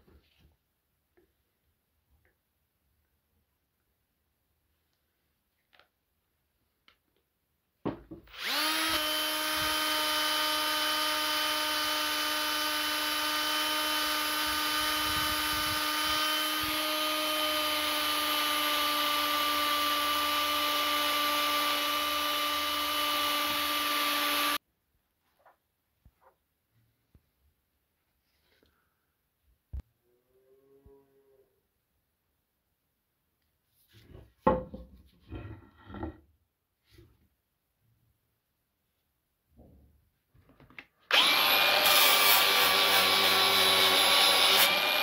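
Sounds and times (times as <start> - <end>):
drill motor whine: 8.3 - 24.6, 41.1 - 45.0.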